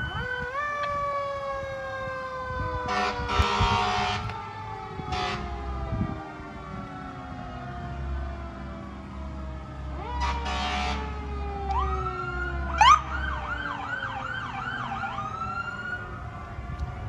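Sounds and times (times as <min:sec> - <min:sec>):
siren yelp: 0:00.0 - 0:17.0
sirens wailing: 0:00.0 - 0:17.0
harsh horn blast: 0:02.9 - 0:04.3, 0:05.1 - 0:05.6, 0:10.2 - 0:11.1.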